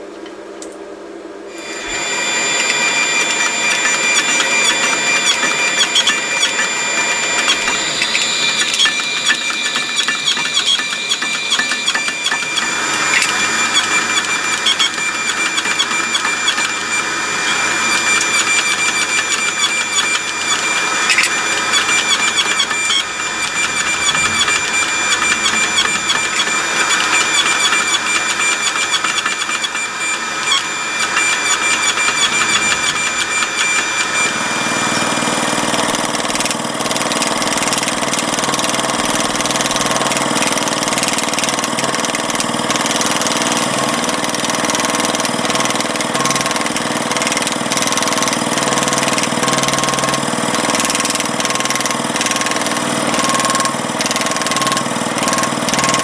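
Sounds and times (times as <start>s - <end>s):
deep machine hum: 1.2s - 41.0s
hydraulic press whine: 1.3s - 56.0s.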